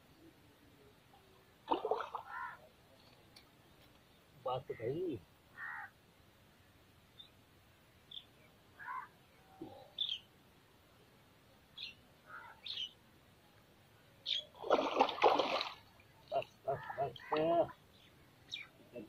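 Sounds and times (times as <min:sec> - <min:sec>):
fish splashing in water: 0:01.7 - 0:02.4, 0:14.6 - 0:15.8
bird chirps: 0:09.8 - 0:10.3, 0:11.8 - 0:13.0, 0:14.2 - 0:14.6.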